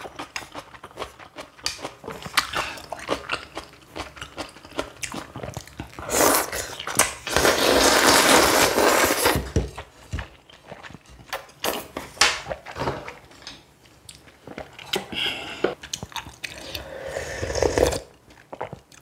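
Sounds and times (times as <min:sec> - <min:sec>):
slurping noodles: 0:06.0 - 0:09.4, 0:16.6 - 0:18.1
chewing with crunchy clicks: 0:15.8 - 0:16.8.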